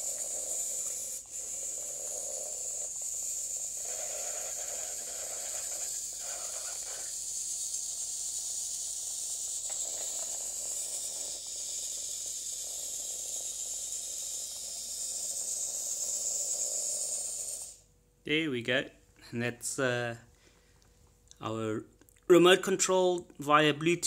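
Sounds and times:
small motors whirring: 0.0s - 17.9s
steady high hiss: 0.0s - 20.4s.

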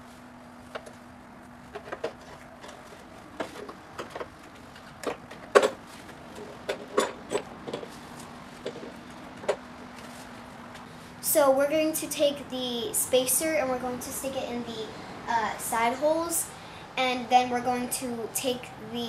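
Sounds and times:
metal clinks and knocks: 1.7s - 8.0s.

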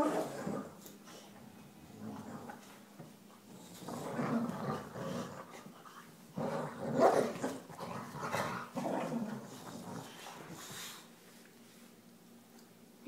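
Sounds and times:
dog growling: 1.8s - 2.6s, 3.5s - 10.6s.

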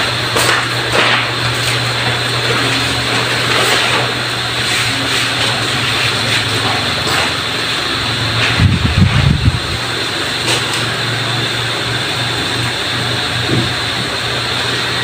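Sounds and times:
room fan humming: 0.0s - 15.0s.

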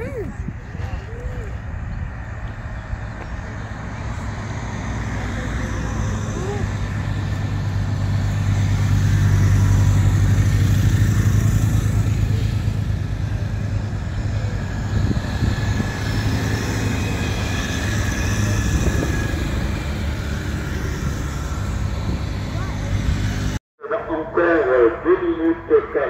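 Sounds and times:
motorcycles and cars driving past: 0.1s - 23.6s.

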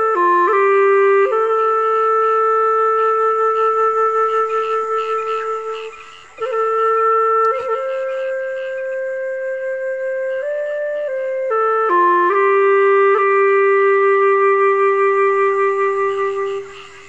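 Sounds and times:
flute-like wind instrument: 0.0s - 17.0s.

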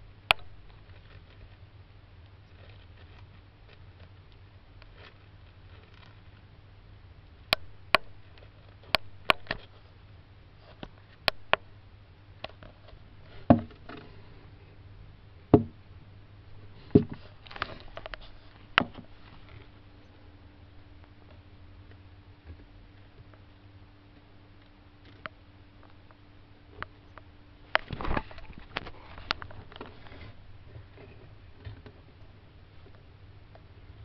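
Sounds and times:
steady low hum: 0.0s - 34.0s
heavy thumps: 13.3s - 14.1s, 15.5s - 15.8s, 16.8s - 18.0s.

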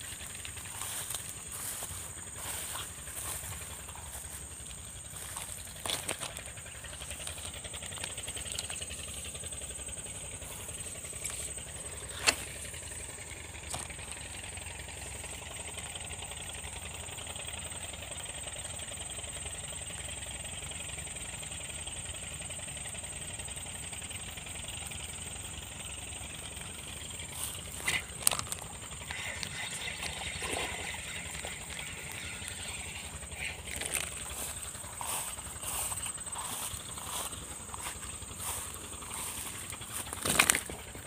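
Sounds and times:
dredge engines droning: 0.0s - 41.0s
high-pitched whine: 27.4s - 41.0s.

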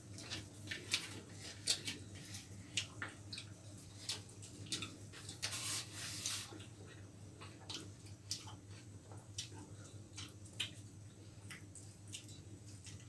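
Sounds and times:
low steady hum: 0.0s - 13.0s
mouth clicks and chewing: 7.4s - 13.0s.

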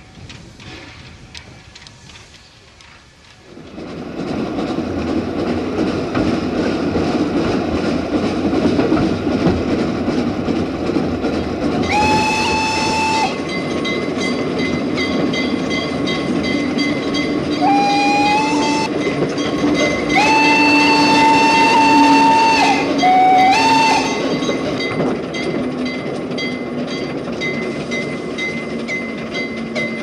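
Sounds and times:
steam locomotive rushing: 0.0s - 30.0s
steam whistle: 11.8s - 13.4s, 17.6s - 18.9s, 20.1s - 24.4s.

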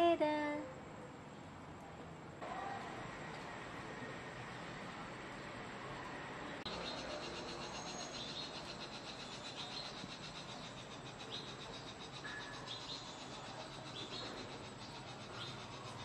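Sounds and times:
insects trilling: 6.7s - 16.0s.

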